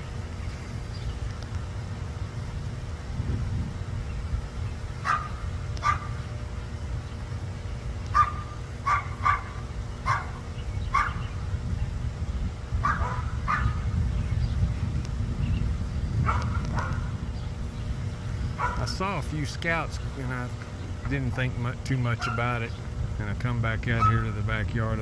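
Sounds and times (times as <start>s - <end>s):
steady low rumble: 0.0s - 25.0s
dog barking: 5.0s - 6.2s, 8.1s - 11.2s, 12.8s - 13.8s, 16.2s - 17.1s, 18.6s - 18.9s, 22.2s - 22.5s, 24.0s - 24.3s.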